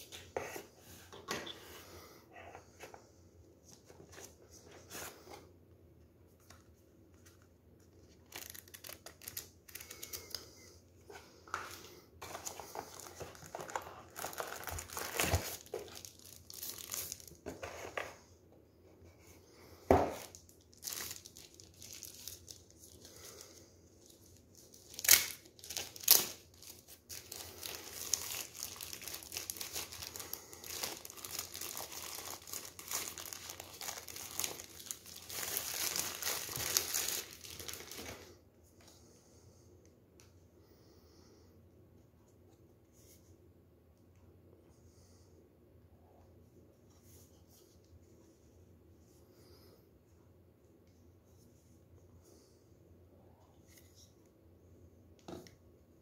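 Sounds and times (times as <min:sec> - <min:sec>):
plastic packaging crinkling: 0:08.1 - 0:10.4, 0:11.6 - 0:17.6, 0:20.1 - 0:38.3.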